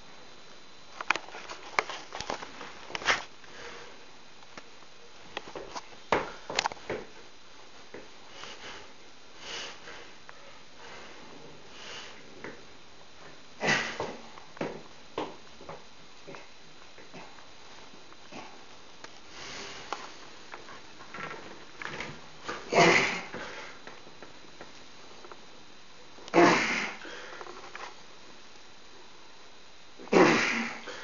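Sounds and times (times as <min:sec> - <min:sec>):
forceful hissing breaths: 0:08.3 - 0:10.2, 0:10.8 - 0:12.3.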